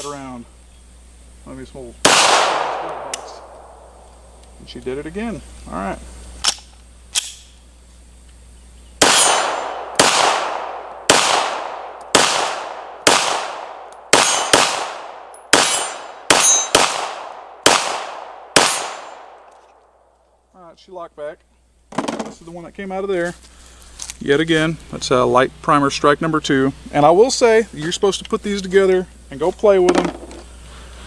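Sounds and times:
pistol shots echoing: 2.0s - 4.0s, 9.0s - 19.5s
pistol metallic clicks: 2.1s - 4.6s, 6.4s - 7.6s, 9.0s - 19.8s.

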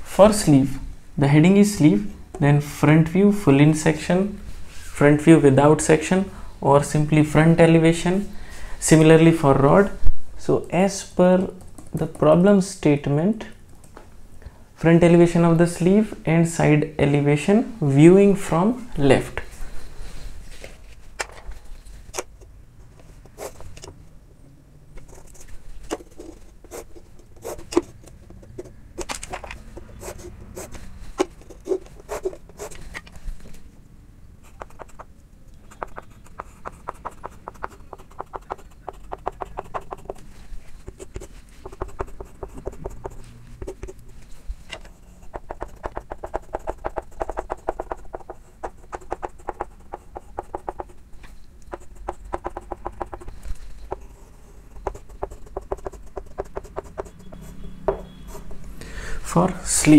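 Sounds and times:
chalk tapping and scratching on chalkboard: 25.0s - 33.1s, 34.4s - 58.7s.

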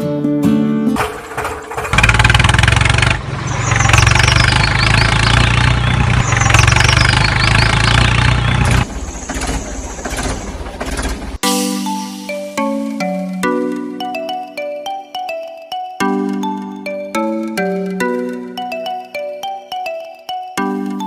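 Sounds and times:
tractor engine running: 1.0s - 11.4s.

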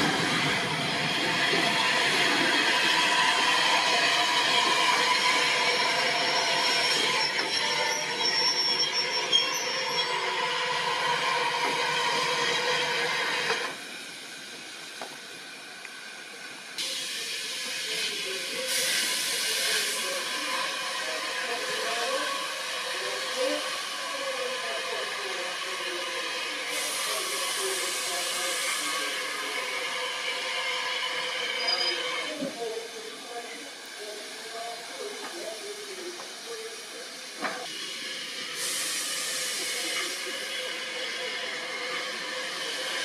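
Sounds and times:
steam hissing: 0.0s - 43.0s
train wheels squealing: 0.4s - 13.7s, 24.1s - 32.8s.

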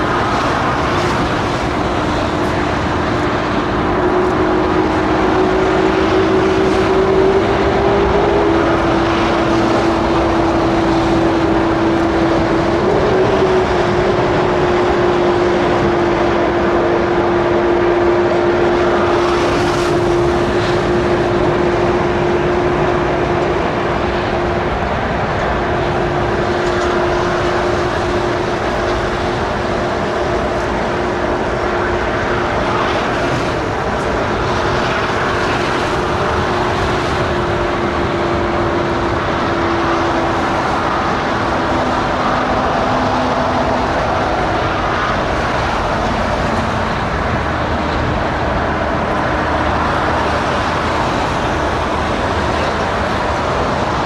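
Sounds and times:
jet engine whine: 0.0s - 54.0s
jet engines running: 0.0s - 54.0s.

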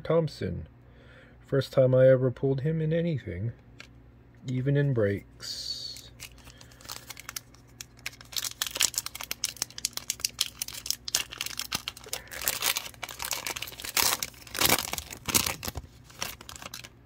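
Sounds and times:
card pack wrapper crinkling: 5.8s - 17.0s.

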